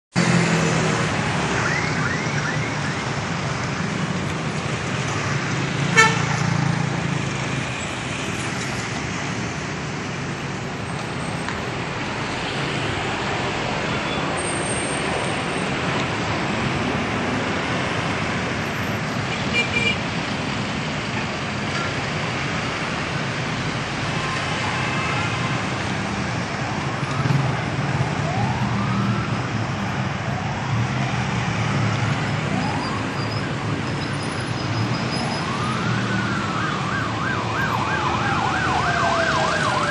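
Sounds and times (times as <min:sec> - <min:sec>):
road traffic rumble: 0:00.1 - 0:39.9
siren whooping: 0:01.0 - 0:03.2, 0:26.6 - 0:30.9, 0:32.2 - 0:39.9.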